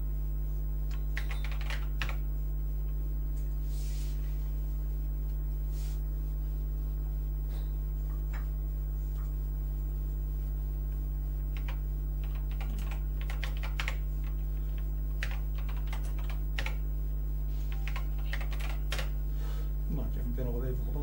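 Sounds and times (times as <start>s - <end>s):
keyboard keys clicking: 0.9s - 2.2s, 11.6s - 14.4s, 15.2s - 16.8s, 17.7s - 19.2s.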